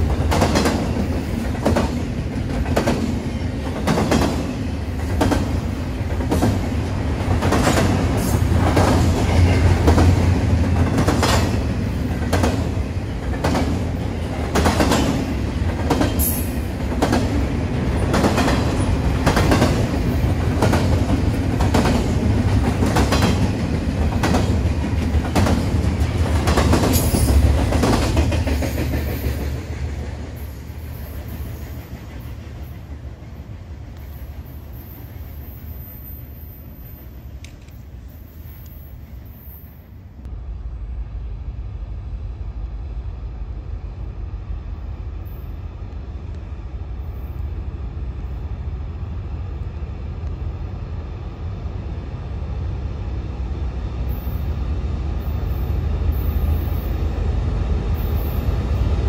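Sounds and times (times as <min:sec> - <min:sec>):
train rumbling past: 0:00.0 - 0:59.0
wheels clacking over rail joints: 0:00.1 - 0:29.9.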